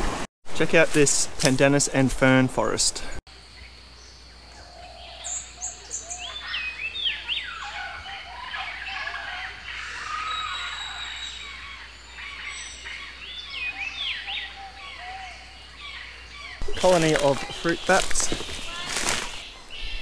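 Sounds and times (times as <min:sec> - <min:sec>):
bats squawking and chattering: 0:04.3 - 0:20.0.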